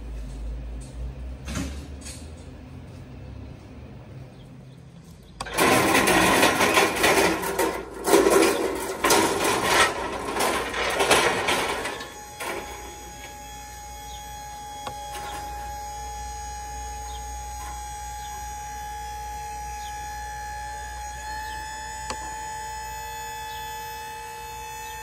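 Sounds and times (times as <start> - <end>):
low hum: 2.9 - 25.0
metal carts rattling on pavement: 5.0 - 13.0.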